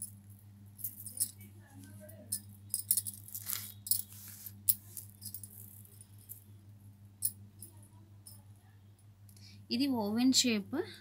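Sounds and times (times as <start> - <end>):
jewellery clinking and rattling: 0.0 - 6.6, 7.2 - 8.6
steady low hum: 0.0 - 11.0.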